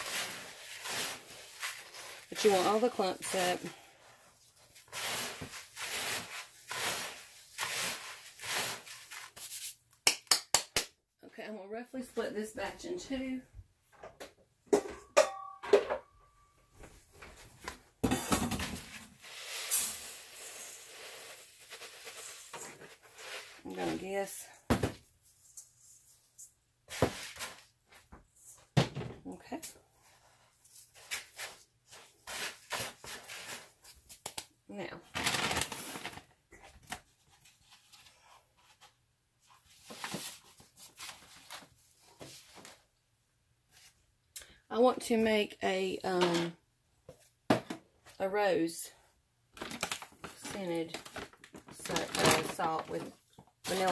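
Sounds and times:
steel bowl knocks and clinks: 14.8 - 16.0
rubbing and rustling handling noise: 16.7 - 28.8, 35.1 - 43.0, 49.5 - 53.9.

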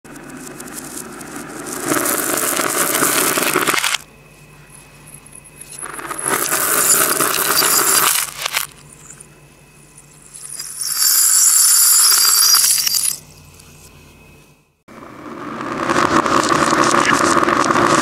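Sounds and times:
beads clattering on floor reversed: 0.1 - 4.0, 5.8 - 8.7, 10.3 - 13.2
glass gems spilling on floor: 1.6 - 4.0, 5.8 - 8.7, 10.4 - 13.2.

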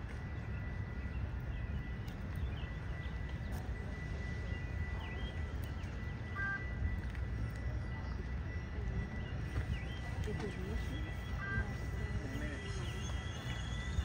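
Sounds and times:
high-pitched tone: 2.9 - 10.1
faint bird chirps: 7.8 - 14.0.

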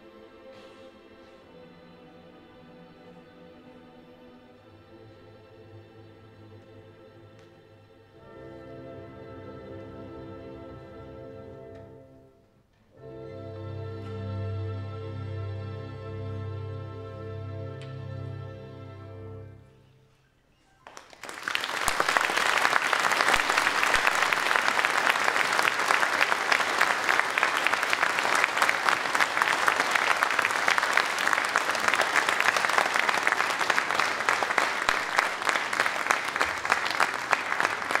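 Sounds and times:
audience applauding: 20.8 - 38.0.

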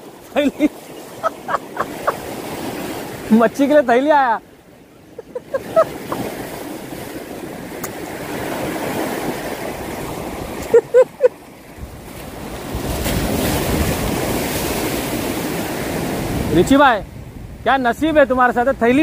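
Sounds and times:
waves washing over rocks: 0.0 - 17.0
wind on microphone: 11.6 - 19.0.

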